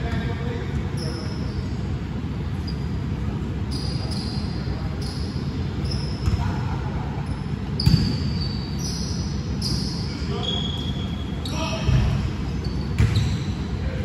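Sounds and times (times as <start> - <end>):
basketball bouncing on gym floor: 0.0 - 0.5, 6.2 - 6.6, 7.8 - 8.3, 11.8 - 13.5
sneaker squeaks: 0.0 - 1.9, 2.5 - 13.9
players' voices: 9.3 - 14.0.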